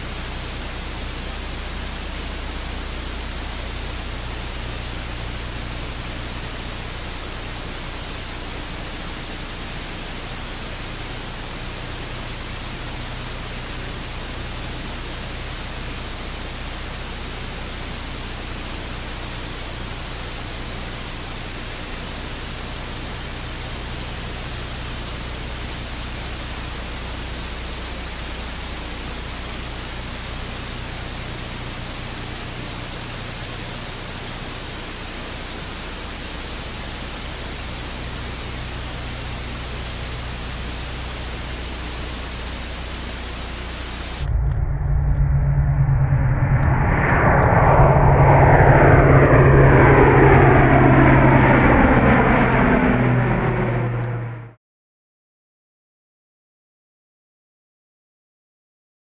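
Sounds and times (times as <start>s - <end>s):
low hum: 0.0s - 7.2s, 42.3s - 54.6s
turboprop aircraft droning overhead: 43.2s - 54.6s
steady rushing noise: 43.4s - 54.6s.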